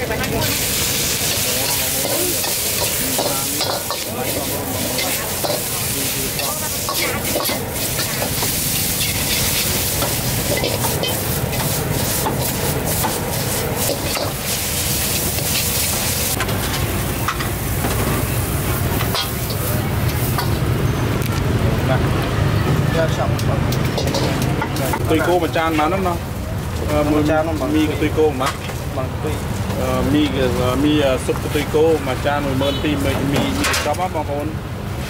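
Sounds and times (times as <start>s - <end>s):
noodles sizzling in wok: 0.0s - 21.0s
metal ladle scraping wok: 0.1s - 21.0s, 23.8s - 25.4s.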